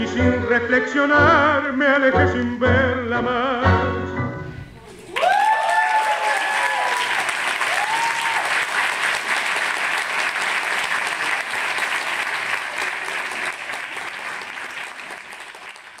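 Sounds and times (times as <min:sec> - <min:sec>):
audience applauding: 0:04.9 - 0:16.0.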